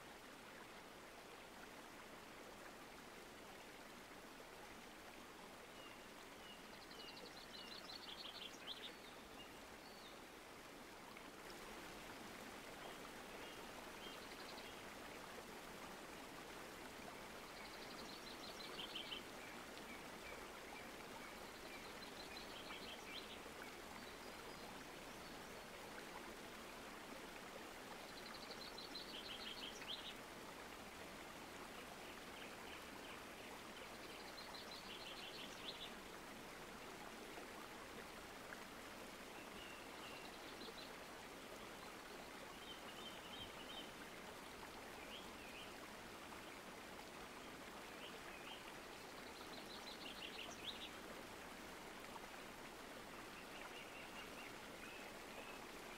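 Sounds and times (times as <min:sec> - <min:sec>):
creek trickling: 0:00.0 - 0:55.9.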